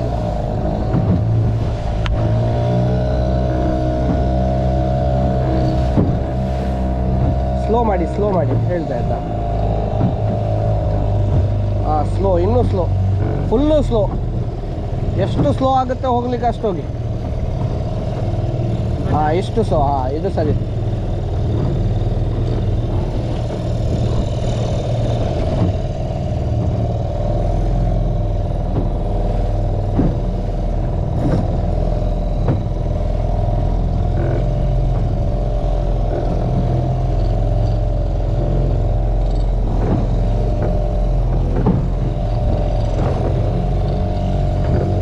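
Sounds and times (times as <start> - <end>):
outboard motor running: 0.0 - 45.0.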